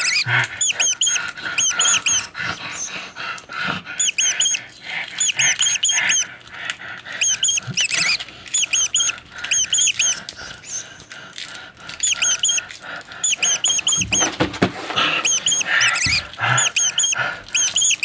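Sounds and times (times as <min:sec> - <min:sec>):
small animal squeaking: 0:00.0 - 0:02.9, 0:04.0 - 0:06.3, 0:07.2 - 0:11.0, 0:11.9 - 0:18.0.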